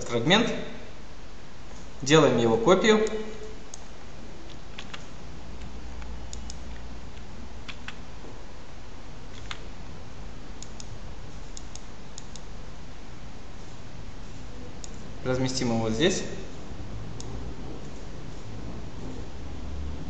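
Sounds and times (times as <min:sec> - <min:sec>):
computer mouse clicks: 0:04.5 - 0:08.0, 0:10.6 - 0:12.5.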